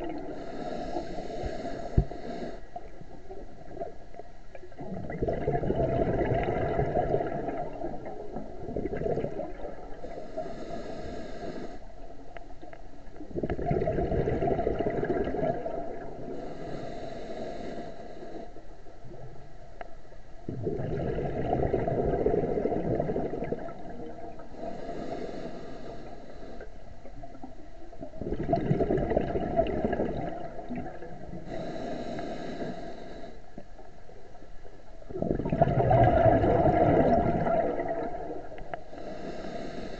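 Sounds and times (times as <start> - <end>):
regulator inhale hiss: 0.0 - 3.1, 10.0 - 12.3, 16.2 - 18.8, 24.3 - 27.5, 31.3 - 33.9, 38.5 - 39.9
exhaled bubbles rumbling: 0.0 - 10.6, 11.9 - 16.5, 18.9 - 25.2, 26.7 - 39.9.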